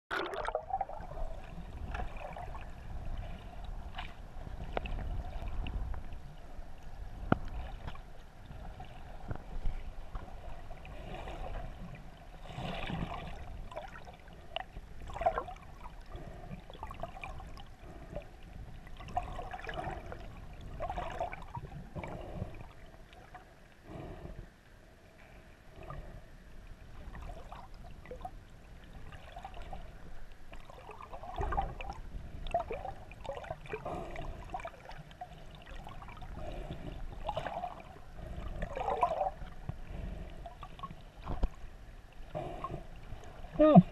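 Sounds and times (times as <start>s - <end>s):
underwater sloshing and bubbling: 0.1s - 43.9s.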